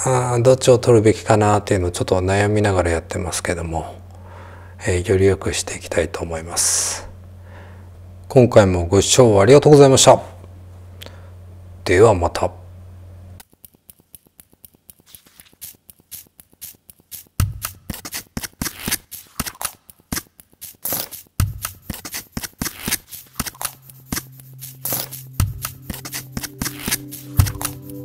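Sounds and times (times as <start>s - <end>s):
electronic music with clicks: 17.1s - 20.3s, 21.4s - 28.0s
held bass note: 23.7s - 28.0s.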